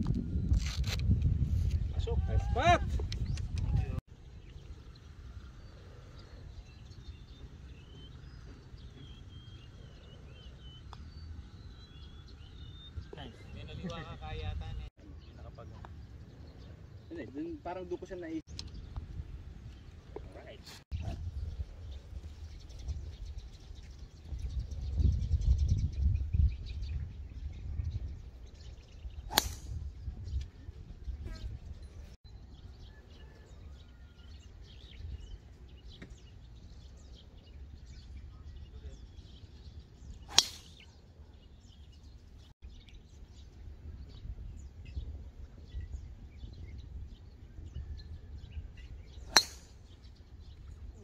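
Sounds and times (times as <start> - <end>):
golf club striking ball: 29.3 - 29.8, 40.3 - 40.8, 49.3 - 49.8.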